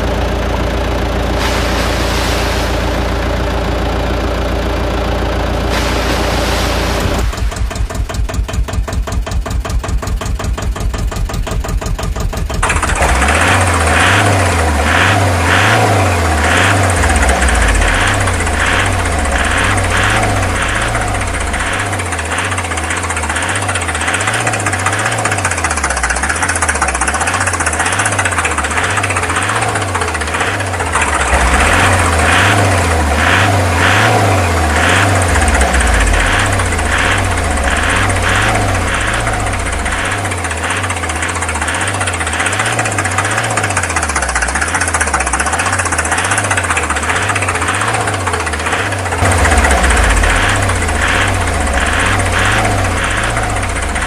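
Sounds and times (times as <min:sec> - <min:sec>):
tractor engine: 0:00.0 - 0:54.0.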